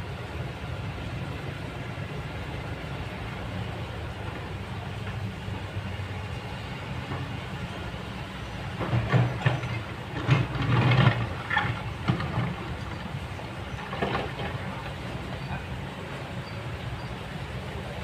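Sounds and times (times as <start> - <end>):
excavator diesel engine: 0.0 - 18.0
bucket scraping loose rock: 9.1 - 12.8.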